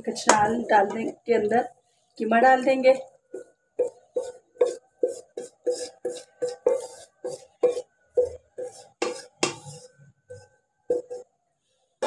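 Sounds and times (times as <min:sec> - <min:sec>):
wooden spatula scraping a pan: 0:03.3 - 0:11.3.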